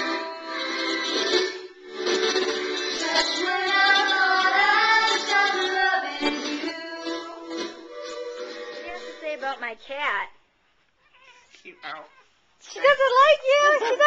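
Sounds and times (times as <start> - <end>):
girls singing together: 2.6 - 9.2.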